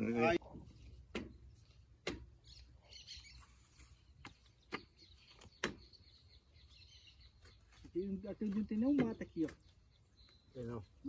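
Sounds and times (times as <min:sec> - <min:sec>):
sharp knocks: 0:01.1 - 0:01.4, 0:02.0 - 0:02.3
faint bird chirps: 0:02.4 - 0:11.0.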